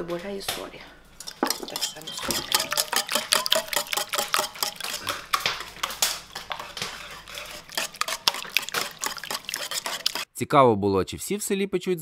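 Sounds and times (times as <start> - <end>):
whisk clicking against bowl: 1.2 - 10.3.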